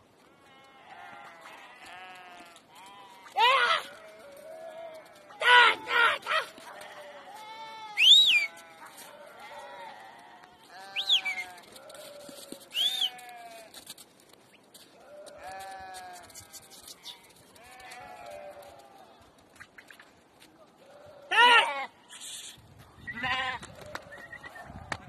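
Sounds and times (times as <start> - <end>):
sheep and goats bleating: 0.2 - 14.0, 15.0 - 19.4, 20.7 - 23.8
loud shrill call: 8.0 - 8.6, 10.9 - 11.6, 12.7 - 13.2.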